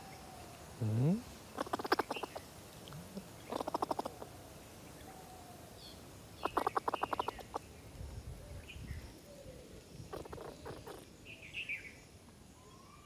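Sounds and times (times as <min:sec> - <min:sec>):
squirrel rattling chatter: 0:01.5 - 0:02.4, 0:03.4 - 0:04.2, 0:06.4 - 0:07.6, 0:10.1 - 0:11.1.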